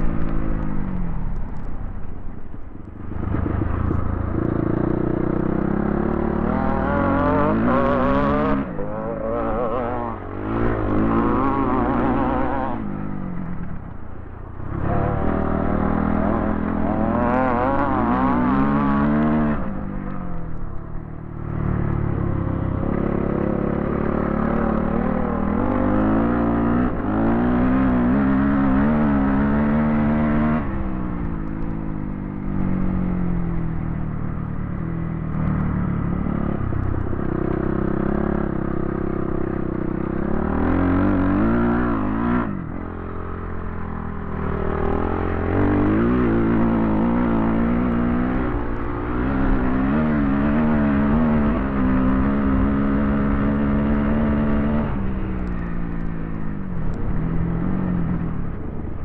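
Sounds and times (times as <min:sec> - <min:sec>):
dirt bike engine revving: 0:03.0 - 0:13.7, 0:14.6 - 0:20.1, 0:21.4 - 0:31.6, 0:35.3 - 0:56.0.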